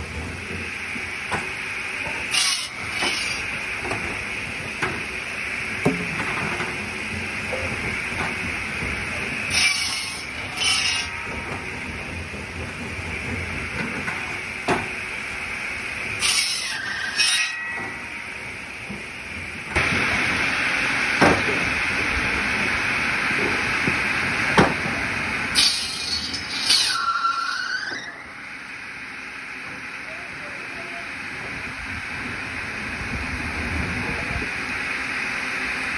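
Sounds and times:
circular saw cutting logs: 0.4 - 19.0, 25.5 - 28.5.

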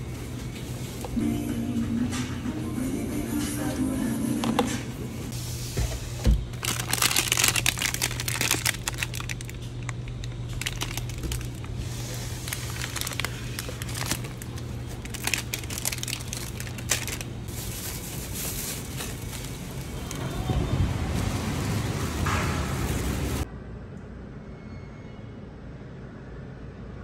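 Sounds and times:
steady low hum: 0.0 - 20.1
plastic wrappers crinkling: 6.5 - 20.4.

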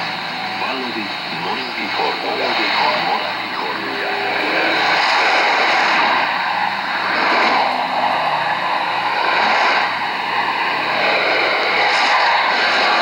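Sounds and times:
radio static hiss: 0.0 - 7.9.

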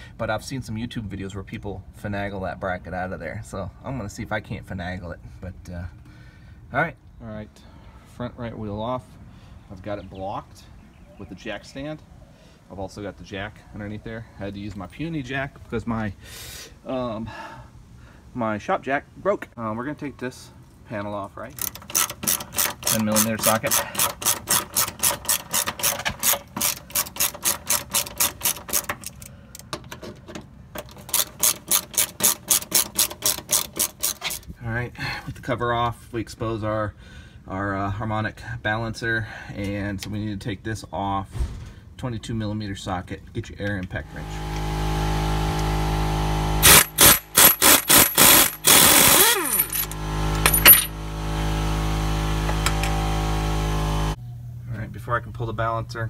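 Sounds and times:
socket ratchet clicking: 21.6 - 29.8, 46.6 - 50.9
steady hum: 44.0 - 55.4
air impact wrench hammering: 46.6 - 51.0.

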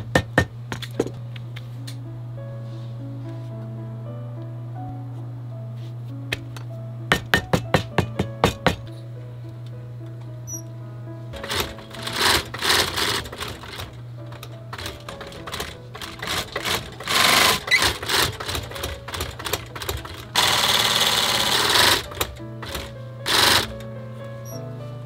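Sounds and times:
sewing machine stitching leather: 11.4 - 23.7.

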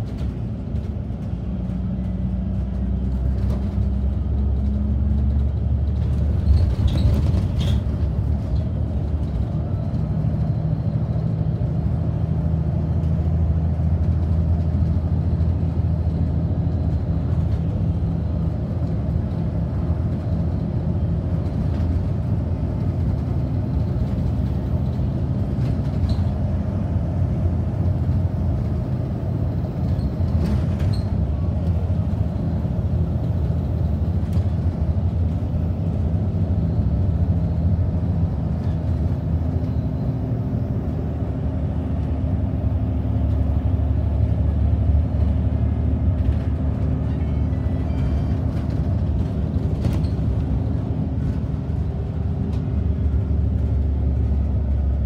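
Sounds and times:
bus engine running: 0.0 - 55.0
road noise: 0.0 - 55.0.

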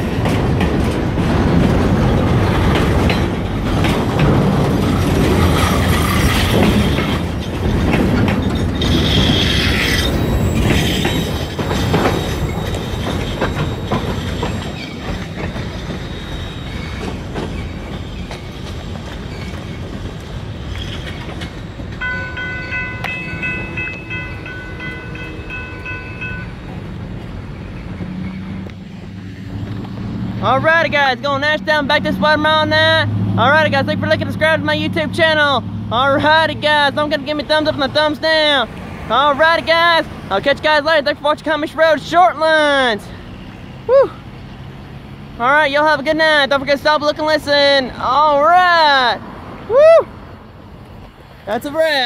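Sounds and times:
train wheels clattering over rails: 0.0 - 30.4
high ringing tone: 22.0 - 26.7.

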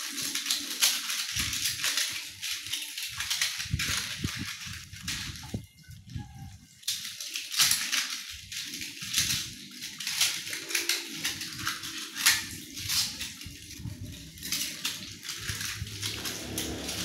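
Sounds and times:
metal utensils clinking: 6.8 - 17.0
sponge scrubbing utensils: 9.6 - 17.0.

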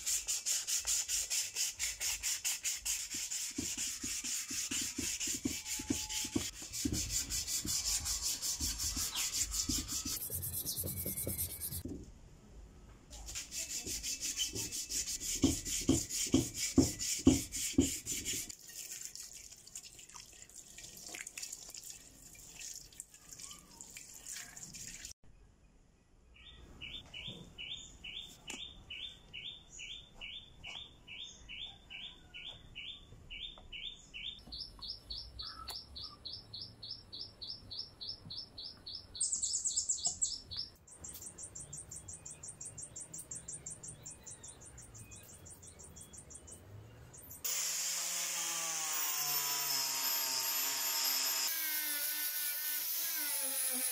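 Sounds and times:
hand sanding metal wheel: 0.0 - 11.8, 13.3 - 18.5.

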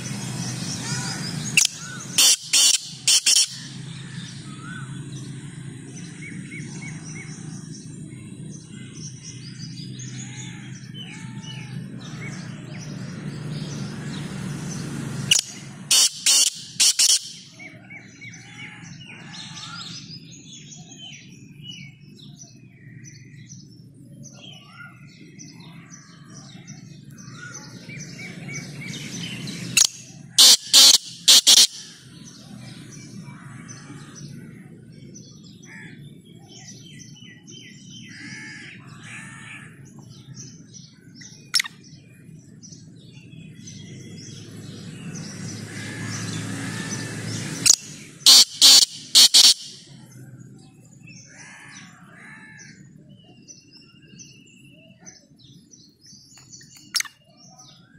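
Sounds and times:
small birds chirping: 0.0 - 57.9
francolin calling: 0.7 - 4.9, 15.3 - 17.8, 29.7 - 32.0, 47.6 - 50.0.

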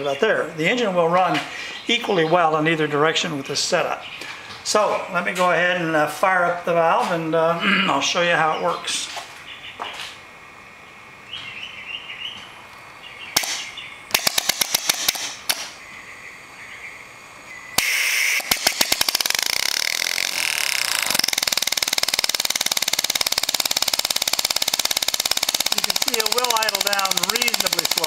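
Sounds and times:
model engine exhaust puffing: 17.8 - 28.0.

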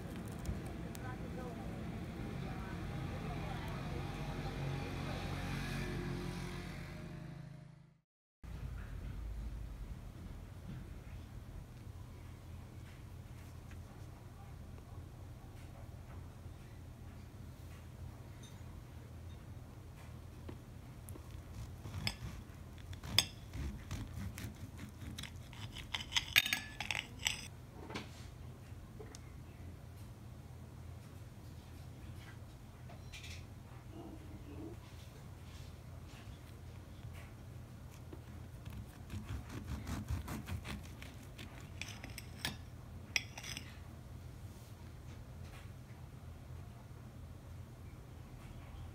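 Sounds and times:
knife sawing through pancake: 21.3 - 26.2, 38.6 - 42.3
cutlery scraping on a plate: 21.5 - 27.5, 39.1 - 43.8.

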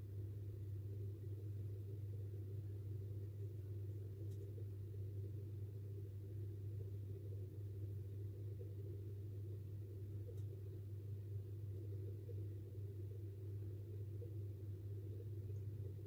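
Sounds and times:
steady low hum: 0.0 - 16.0
faint tick: 10.2 - 10.6.

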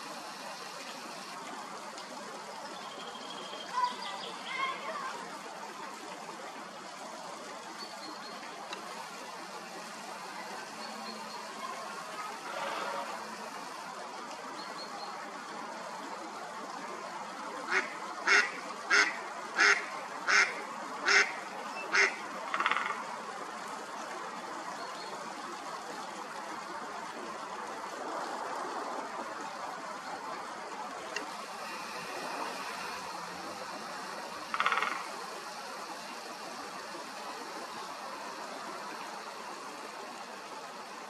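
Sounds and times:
steady outdoor hiss: 0.0 - 41.0
duck quacking: 17.7 - 21.3, 21.9 - 23.0.

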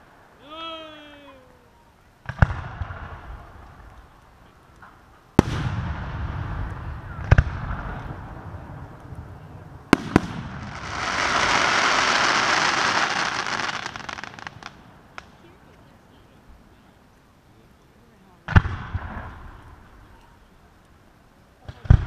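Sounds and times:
crackling firework stars: 0.0 - 22.0
firework bangs: 2.2 - 3.9, 4.8 - 15.4, 18.4 - 20.0.

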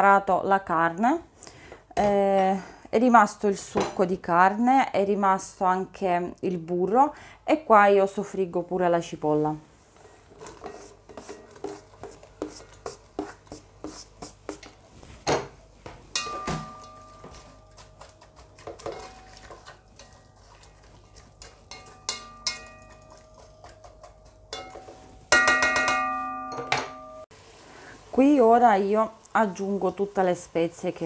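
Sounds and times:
onion scraped into metal pot: 10.0 - 14.7, 17.0 - 25.3
spatula knocking metal pot: 16.1 - 20.2, 21.4 - 27.2.

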